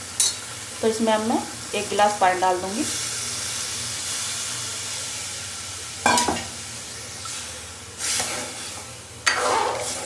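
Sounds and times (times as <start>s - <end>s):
water hissing in hot pan: 0.0s - 10.0s
metal spoon clanking on pan: 0.2s - 0.4s, 6.1s - 6.5s
spoon scraping pan: 8.0s - 10.0s.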